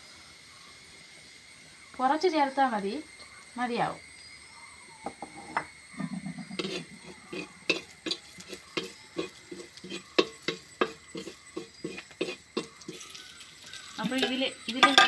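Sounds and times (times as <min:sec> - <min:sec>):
chillies frying in oil: 0:00.0 - 0:04.5, 0:06.6 - 0:15.0
spoon knocking against pan: 0:07.7 - 0:13.0.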